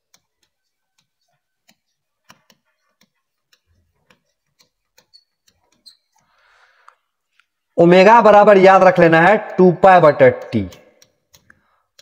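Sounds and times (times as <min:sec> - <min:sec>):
chalk tapping on blackboard: 0:00.0 - 0:06.3.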